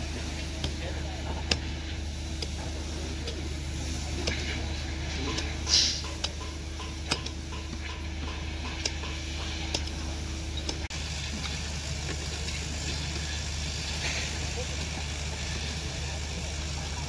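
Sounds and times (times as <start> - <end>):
steady low hum: 0.0 - 17.0
short hiss: 5.6 - 6.0.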